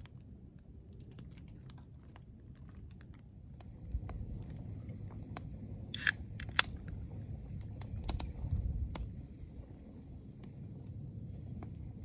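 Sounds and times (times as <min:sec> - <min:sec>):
campfire crackling: 0:00.0 - 0:12.0
wind on microphone: 0:00.0 - 0:12.0.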